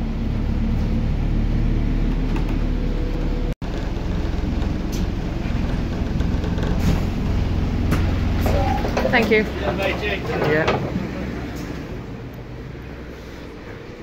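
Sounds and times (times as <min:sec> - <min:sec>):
bus engine drone: 0:00.0 - 0:14.0
faint rattles: 0:03.6 - 0:11.8.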